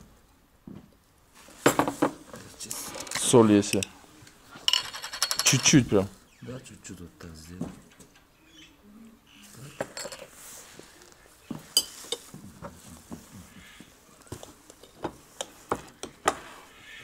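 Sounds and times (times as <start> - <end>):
cutlery clinking on plates: 9.8 - 10.3, 11.5 - 12.4, 14.3 - 16.5.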